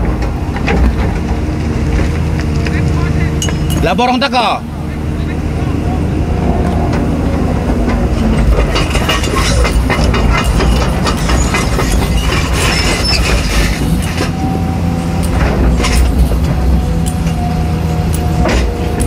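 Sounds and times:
excavator diesel engine under load: 0:00.0 - 0:19.0
hydraulics working: 0:00.0 - 0:19.0
bucket clattering and scraping ground: 0:07.8 - 0:14.6.

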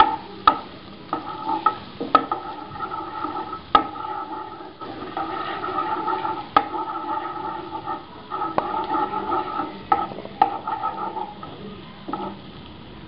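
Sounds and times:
spatula knocking on pan: 0:00.0 - 0:11.5
wooden spatula scraping wok: 0:00.0 - 0:12.6
butter sizzling in oil: 0:00.0 - 0:13.0.

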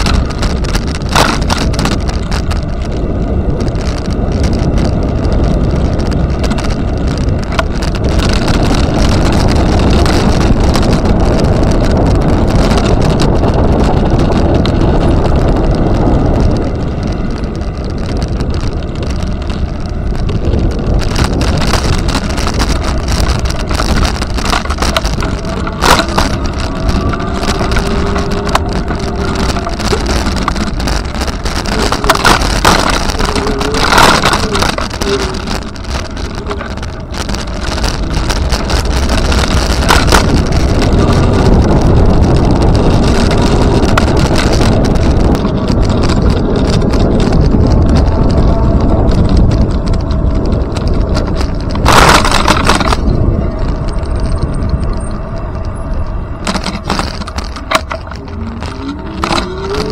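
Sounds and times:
rolling noise of ride: 0:00.0 - 0:59.9
wind over microphone: 0:00.0 - 0:59.9.

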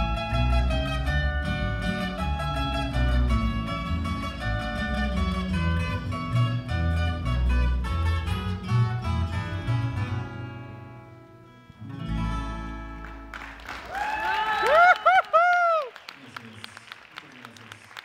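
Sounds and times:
double bass: 0:00.0 - 0:13.6
acoustic guitars: 0:00.0 - 0:13.9.

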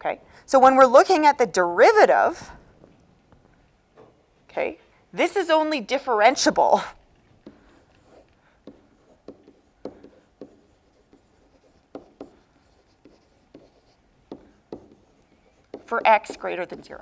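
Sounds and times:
stylus ticking and scratching on screen: 0:07.1 - 0:17.0.

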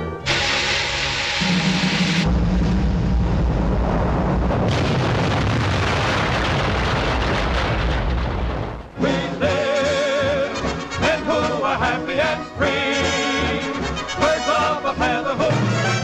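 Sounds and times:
orchestral music: 0:00.0 - 0:02.7, 0:08.9 - 0:16.0
cartoon cannon explosion rumbling: 0:01.4 - 0:09.0.

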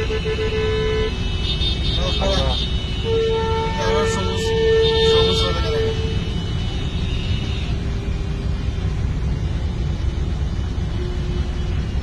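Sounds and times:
high horn note: 0:00.0 - 0:07.7
traffic engines rumbling: 0:00.0 - 0:12.0
diesel locomotive creeping: 0:03.4 - 0:12.0.

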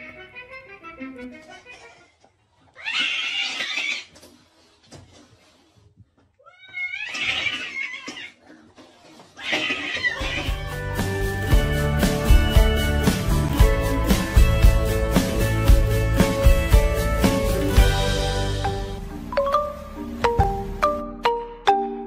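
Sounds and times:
cat yowling and hissing: 0:02.8 - 0:04.1, 0:06.5 - 0:08.4.

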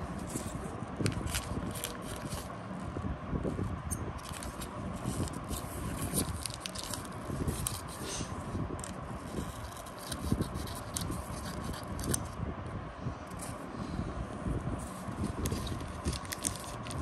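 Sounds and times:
packet wrapper crackling: 0:01.0 - 0:02.5, 0:04.2 - 0:07.9, 0:15.3 - 0:17.0.

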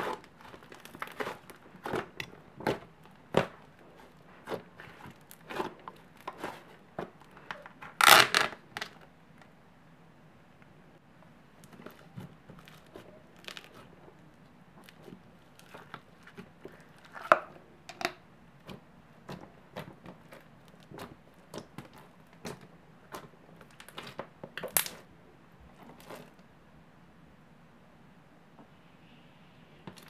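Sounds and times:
slime crackling and popping: 0:00.1 - 0:03.8, 0:18.6 - 0:25.0.

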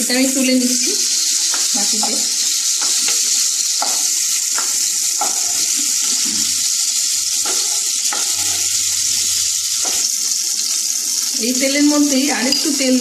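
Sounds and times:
prawns sizzling in oil: 0:00.0 - 0:13.0
spatula scraping and tapping pan: 0:01.2 - 0:10.8.

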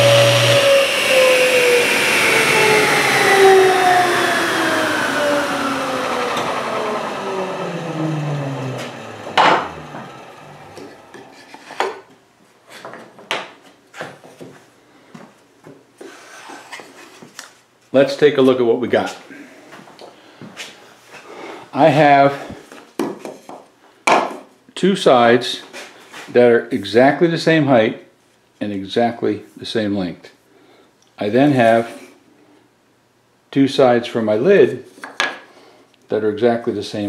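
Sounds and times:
table saw blade whine winding down: 0:00.0 - 0:11.4.

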